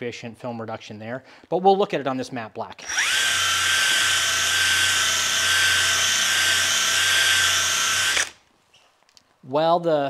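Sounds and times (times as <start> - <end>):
cordless drill motor whine: 2.8 - 8.4.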